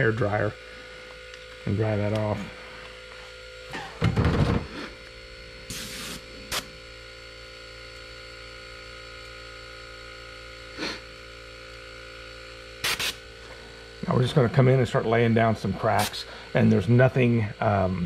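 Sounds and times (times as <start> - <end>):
electrical hum: 0.0 - 18.0
short hiss: 5.7 - 6.7.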